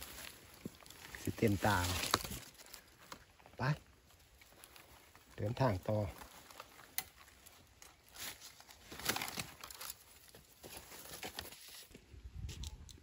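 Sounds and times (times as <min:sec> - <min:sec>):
leaves and twigs crackling underfoot: 0:00.0 - 0:13.0
twig snapping: 0:01.8 - 0:03.3, 0:06.4 - 0:10.0.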